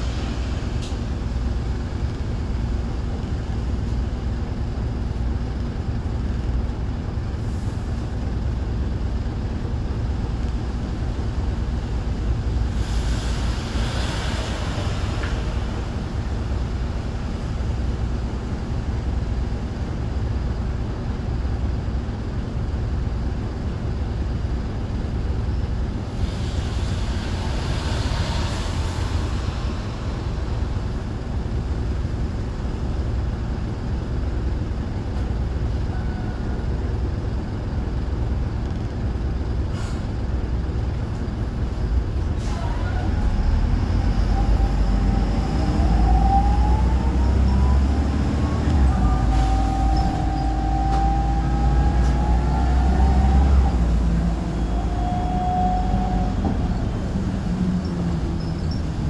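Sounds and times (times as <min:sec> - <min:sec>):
bus diesel engine: 0:00.0 - 0:59.0
whine rising in pitch: 0:43.9 - 0:57.0.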